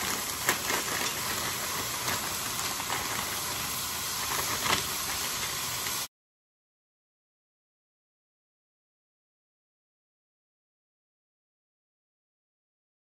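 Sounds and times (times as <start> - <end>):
corn kernels landing clicks: 0.0 - 6.0
sizzling hiss in a pot: 0.0 - 6.1.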